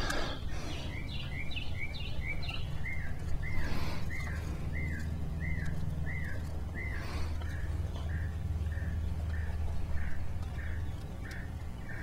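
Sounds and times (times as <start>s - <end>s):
bird chirping: 0.0s - 12.0s
low steady hum: 0.0s - 12.0s.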